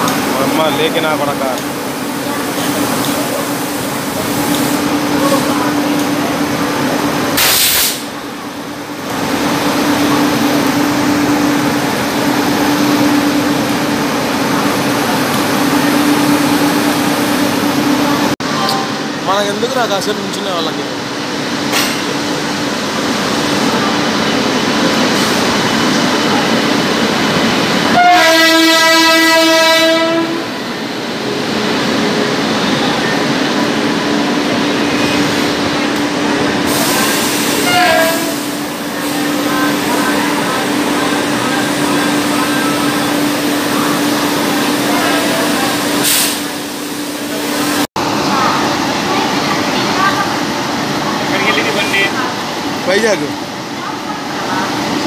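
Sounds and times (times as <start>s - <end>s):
electric locomotive humming: 0.0s - 55.0s
loud burst of hiss: 7.4s - 8.1s, 46.0s - 46.6s
locomotive horn blast: 27.9s - 30.6s, 37.4s - 38.6s.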